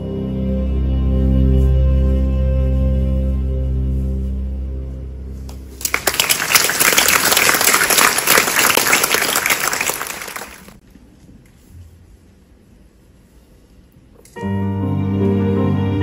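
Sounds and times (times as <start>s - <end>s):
audience applauding: 5.8s - 10.8s.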